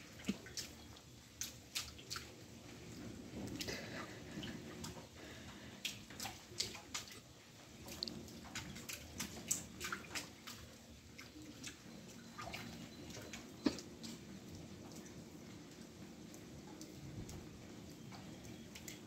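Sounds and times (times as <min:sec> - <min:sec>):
low steady hiss: 0:00.0 - 0:19.0
water dripping into puddles: 0:00.0 - 0:19.0.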